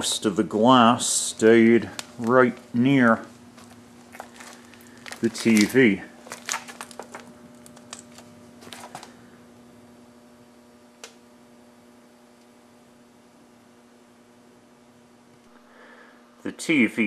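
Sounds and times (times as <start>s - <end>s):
faint steady hum: 0.0s - 17.0s
handling clicks and crunches: 1.8s - 9.2s.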